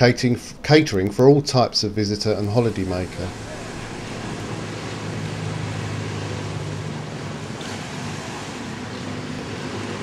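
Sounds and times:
wind: 0:00.0 - 0:10.0
engine humming: 0:02.1 - 0:10.0.

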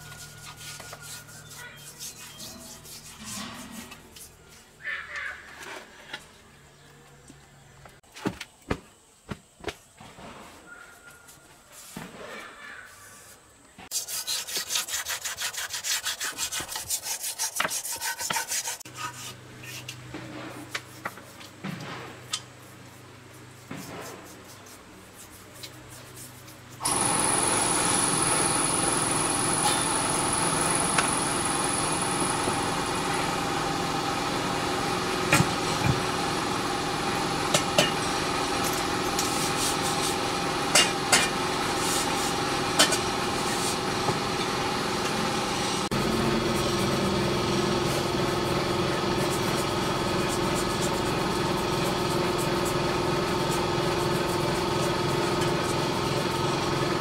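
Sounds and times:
machine noise with high whine: 0:00.0 - 0:03.8, 0:26.8 - 0:57.0
rhythmic scraping strokes: 0:00.0 - 0:04.8.

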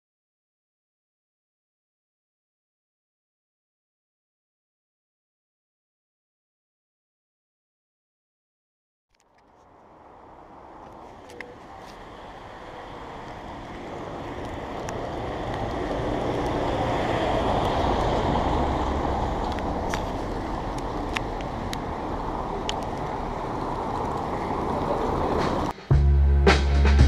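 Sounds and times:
minibus tyres on wet cobbles: 0:09.1 - 0:26.0
car passing: 0:09.3 - 0:27.0.

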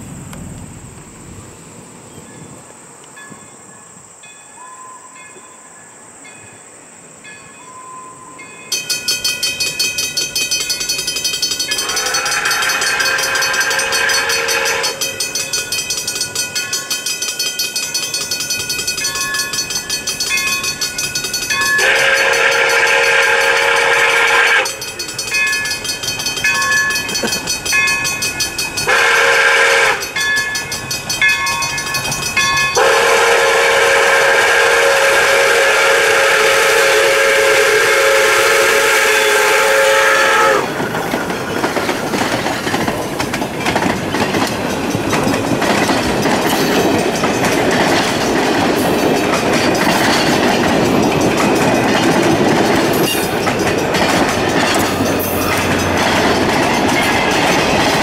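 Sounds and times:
steam locomotive exhaust: 0:00.0 - 0:02.6, 0:08.2 - 0:58.0
steam whistle blasts: 0:11.7 - 0:15.2, 0:21.6 - 0:24.9, 0:28.8 - 0:30.2, 0:32.8 - 0:40.8.

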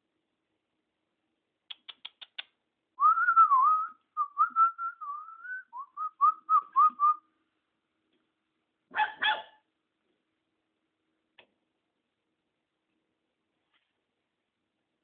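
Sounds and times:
quick clicks: 0:01.7 - 0:02.6
person whistling: 0:03.0 - 0:07.2.

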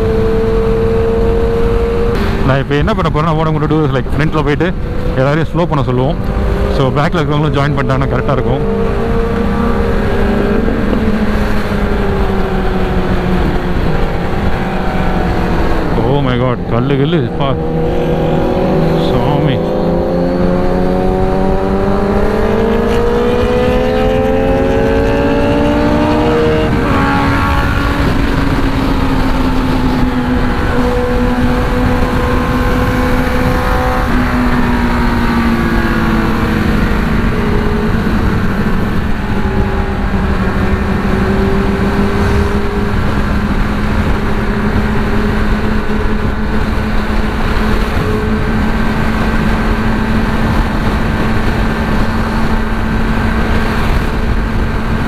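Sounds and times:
motorcycle engine accelerating: 0:00.0 - 0:55.0
wind rushing at speed: 0:00.0 - 0:55.0.

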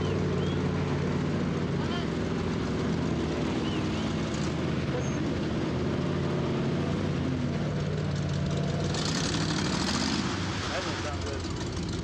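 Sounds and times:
truck engine running steadily: 0:00.0 - 0:12.0.

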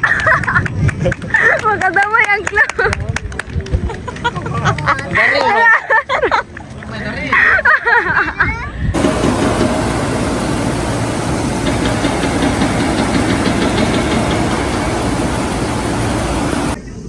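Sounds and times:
vehicle engine running: 0:09.0 - 0:16.8.

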